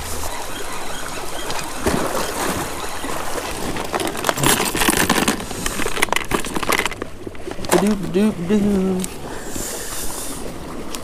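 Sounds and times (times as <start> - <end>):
tackle clinking: 3.4 - 8.0.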